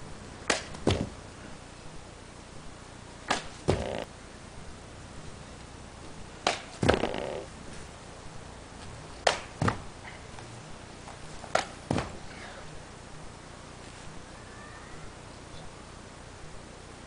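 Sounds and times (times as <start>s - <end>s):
feet and hands thumping on grass: 3.3s - 4.0s, 8.8s - 12.3s.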